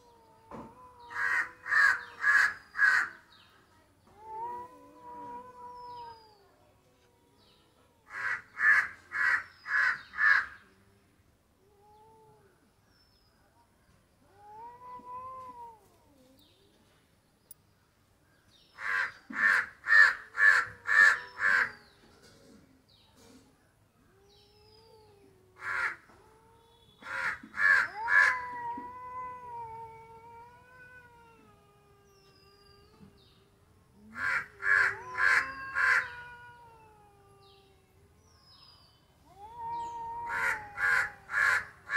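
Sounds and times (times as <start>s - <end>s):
cats meowing: 0.0s - 3.2s, 4.0s - 10.4s, 14.2s - 16.7s, 19.3s - 22.1s, 24.0s - 38.2s, 39.2s - 41.9s
crow cawing: 25.6s - 26.0s, 27.0s - 27.9s, 34.2s - 36.1s.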